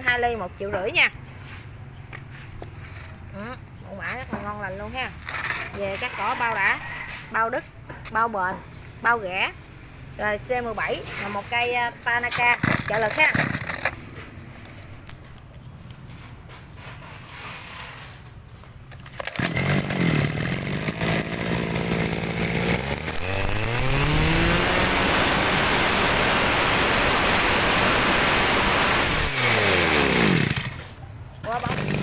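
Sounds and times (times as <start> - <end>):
brush cutter engine revving: 12.2 - 14.0, 19.1 - 32.0.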